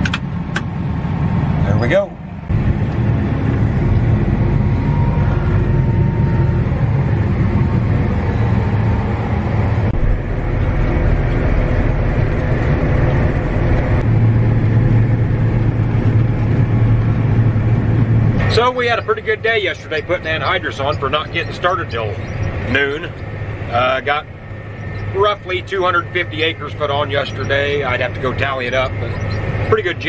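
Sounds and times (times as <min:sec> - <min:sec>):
tractor engine running under load: 0:00.0 - 0:30.0.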